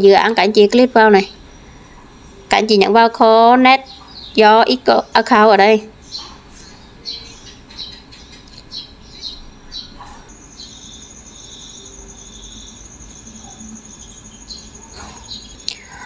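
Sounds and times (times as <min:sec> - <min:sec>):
birds chirping: 0:00.0 - 0:16.0
pulsing insect trill: 0:09.0 - 0:16.0.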